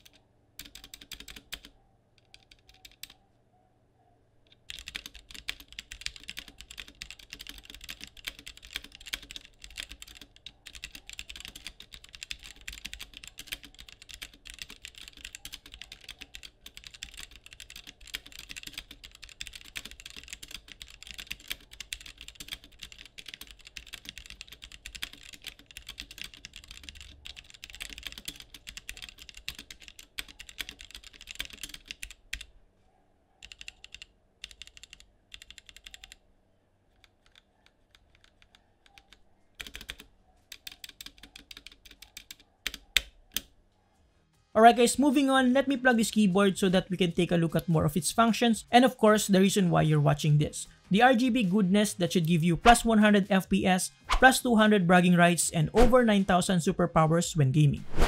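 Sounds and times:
typing on mechanical keyboard: 0:00.0 - 0:03.2, 0:04.5 - 0:32.5, 0:33.4 - 0:36.2, 0:36.9 - 0:43.5.

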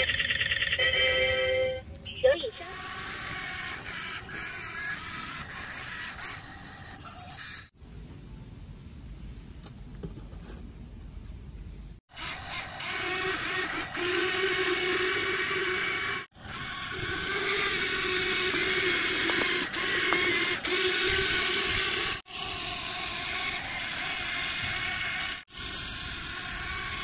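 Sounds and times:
toy excavator motors whirring: 0:00.0 - 0:01.3, 0:02.4 - 0:07.7, 0:12.1 - 0:27.0.

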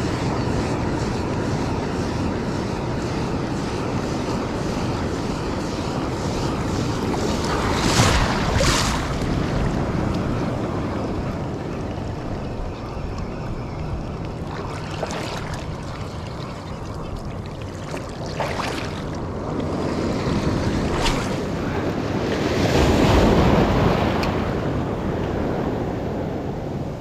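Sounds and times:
wind on microphone: 0:00.0 - 0:27.0
small surf washing in: 0:05.4 - 0:12.4, 0:14.4 - 0:24.6.

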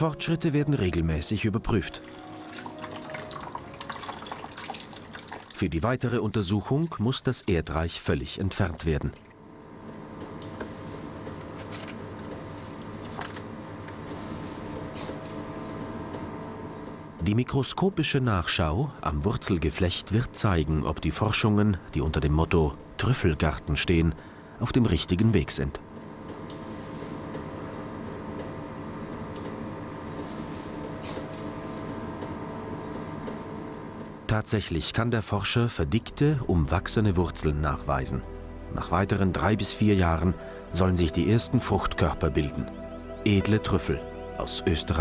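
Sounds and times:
mechanical hum: 0:00.0 - 0:45.0.

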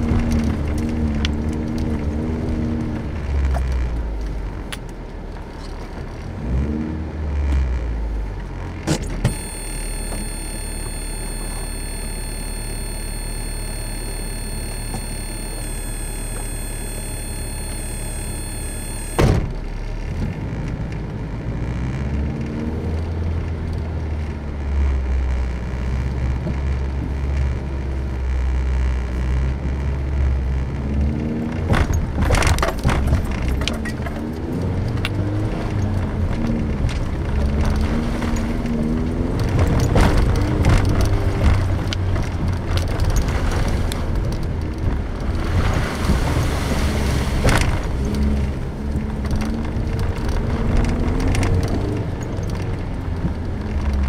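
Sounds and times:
car engine revving: 0:06.4 - 0:23.6
high-pitched whine: 0:09.3 - 0:19.8
body knocks and rattles: 0:31.6 - 0:35.1, 0:39.3 - 0:46.6.

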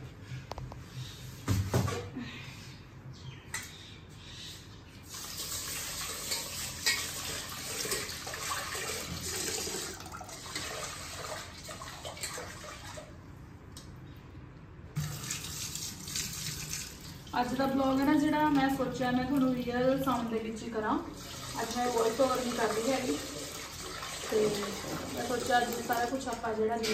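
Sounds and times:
tap water filling a steel pot: 0:05.1 - 0:13.0, 0:21.2 - 0:26.9.

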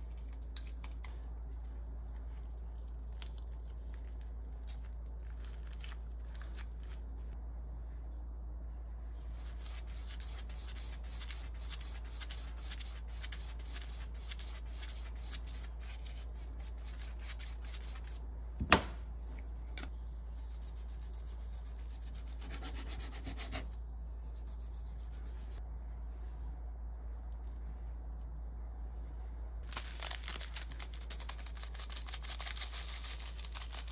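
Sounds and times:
steady low hum: 0:00.0 - 0:33.9
pastry brush rubbing: 0:09.1 - 0:18.2, 0:20.2 - 0:25.6.

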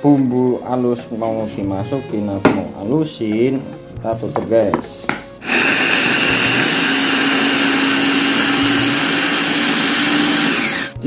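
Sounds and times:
electric food chopper whining: 0:05.4 - 0:11.0.

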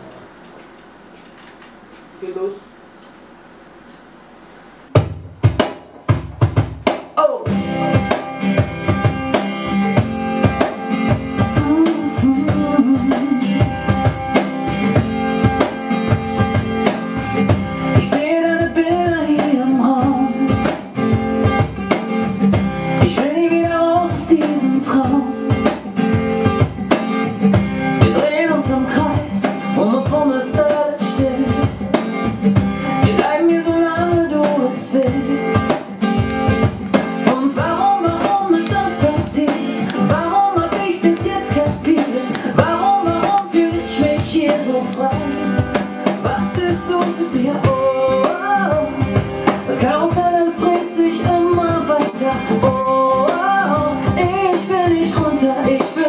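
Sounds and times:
acoustic guitar: 0:04.9 - 0:56.0
hand drum hits: 0:05.0 - 0:07.1
man singing: 0:11.3 - 0:13.9, 0:17.9 - 0:20.8, 0:23.0 - 0:25.8, 0:28.0 - 0:32.2, 0:32.8 - 0:35.9, 0:37.2 - 0:56.0.

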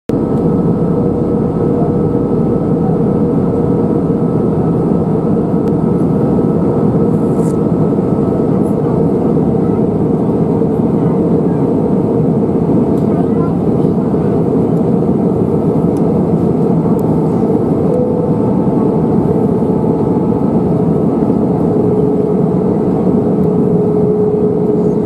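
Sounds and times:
jet engine drone: 0:00.1 - 0:25.0
steady hum: 0:00.1 - 0:25.0.

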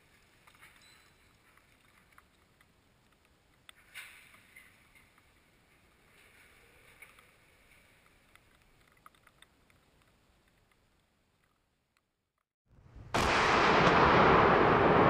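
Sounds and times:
small ticks and clicks: 0:00.0 - 0:12.5
faint outdoor hiss: 0:00.0 - 0:12.9.

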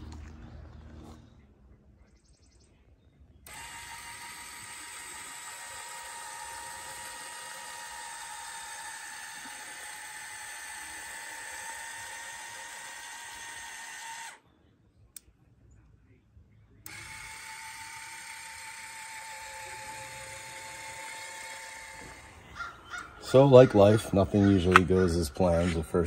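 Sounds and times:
electric motor whining: 0:03.4 - 0:14.4, 0:16.8 - 0:26.0.

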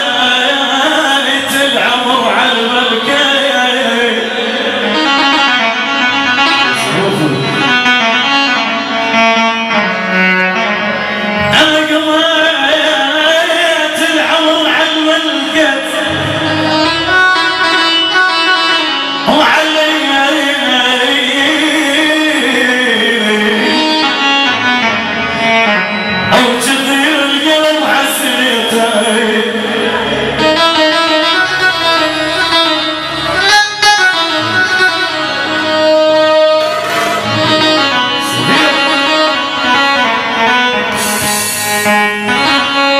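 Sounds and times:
man singing through a microphone: 0:00.0 - 0:07.9, 0:11.4 - 0:17.0, 0:19.2 - 0:24.9, 0:26.3 - 0:32.7, 0:37.2 - 0:42.9
amplified instrumental accompaniment: 0:00.0 - 0:42.9
backing music: 0:00.0 - 0:42.9.

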